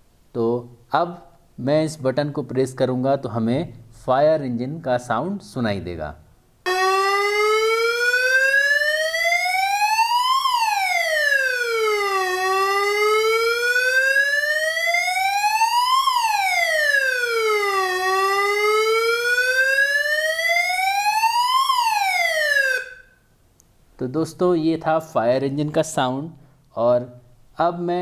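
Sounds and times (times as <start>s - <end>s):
electronic siren wail: 6.7s - 23.2s.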